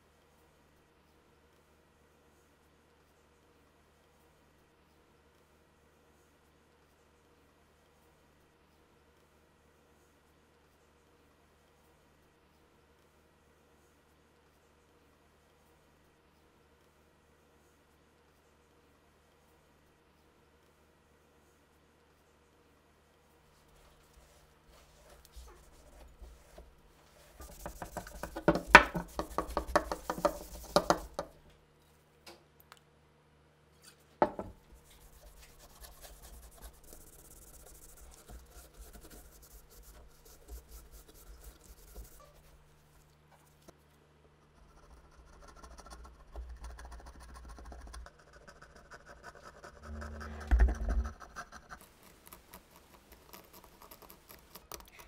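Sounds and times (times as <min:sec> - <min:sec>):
scratching and rubbing metal: 0:24.2 - 0:31.4, 0:34.7 - 0:42.6, 0:44.6 - 0:55.0.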